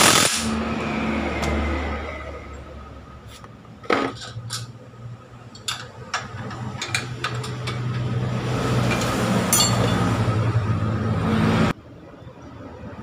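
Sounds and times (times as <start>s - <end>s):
metal tools clinking: 5.5s - 8.2s, 8.8s - 10.2s.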